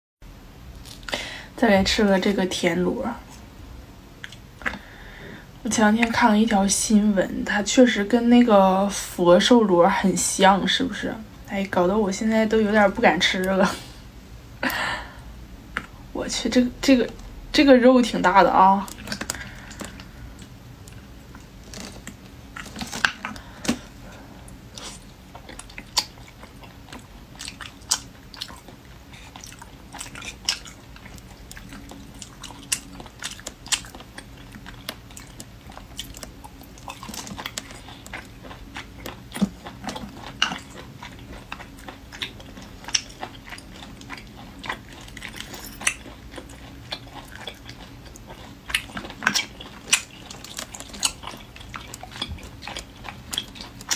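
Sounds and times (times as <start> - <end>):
close-miked chewing: 4.2 - 5.0, 15.7 - 53.9.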